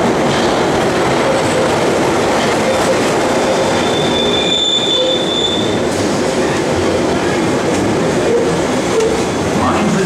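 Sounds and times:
train wheels rumbling on rails: 0.0 - 10.0
train brakes squealing: 3.5 - 5.8.

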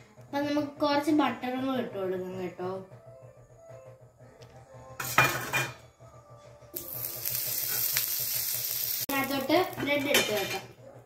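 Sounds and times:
butter sizzling in a frying pan: 6.8 - 10.6.

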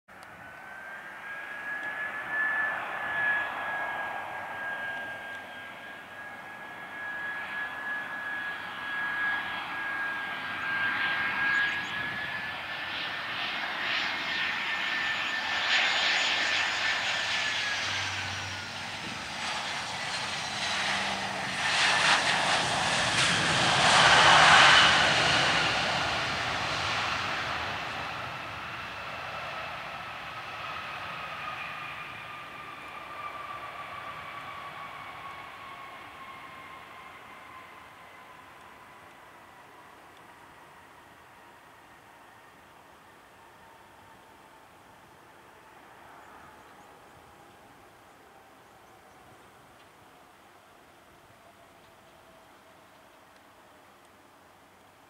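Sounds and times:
jet engine whine: 0.1 - 55.0
jet engine rushing noise: 0.6 - 37.6.

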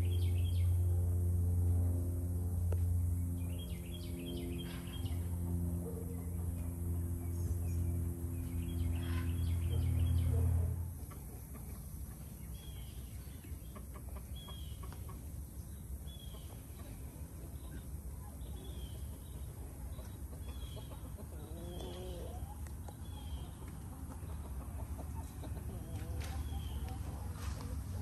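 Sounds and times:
loud low hum: 0.0 - 28.0
chickens clucking: 9.0 - 28.0.

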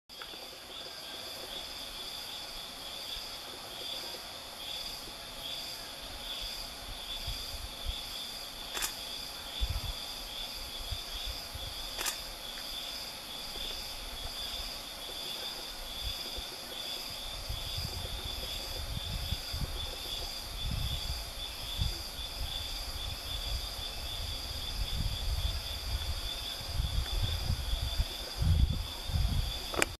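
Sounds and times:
insect chorus droning: 0.1 - 30.0
short clicks: 8.7 - 9.0, 12.0 - 12.2
low rumbling on microphone: 17.1 - 30.0.

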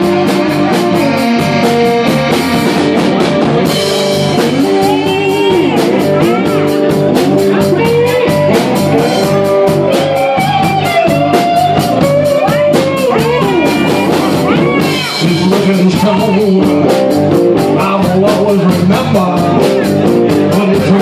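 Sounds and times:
harmonica lead: 0.0 - 17.9
live blues band playing: 0.0 - 21.0.

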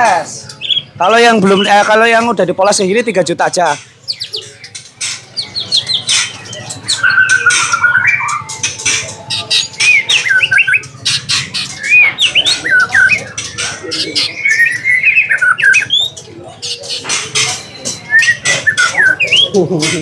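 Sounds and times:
bird singing whistled phrases: 5.4 - 8.5, 9.3 - 17.0, 17.8 - 19.6.

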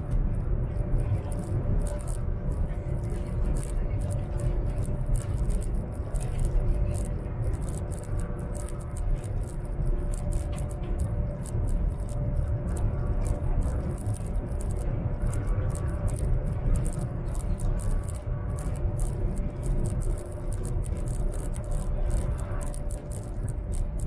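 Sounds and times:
ticking rattle: 0.0 - 24.0.

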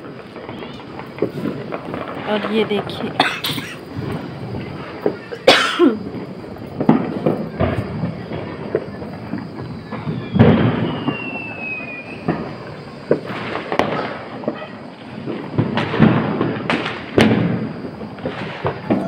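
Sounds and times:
firecrackers bursting: 0.0 - 19.0
falling whistle: 8.9 - 13.0.

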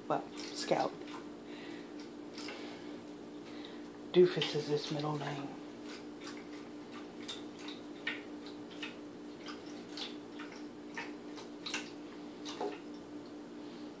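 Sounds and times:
cat lapping water: 4.4 - 13.1.

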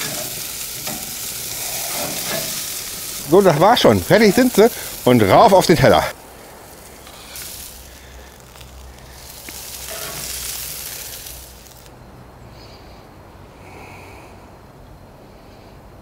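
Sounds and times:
chicken wings sizzling: 0.0 - 11.9.

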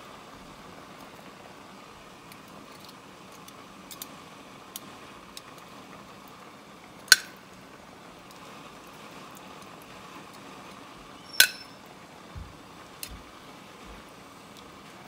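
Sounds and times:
tongs clinking on plate and pot: 11.3 - 11.7.

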